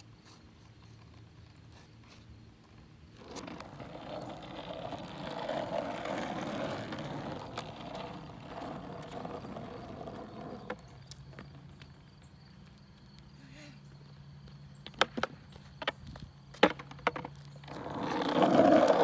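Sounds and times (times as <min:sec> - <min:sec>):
skateboard wheels rolling on asphalt: 0:00.0 - 0:19.0
skateboard clacks: 0:14.8 - 0:19.0.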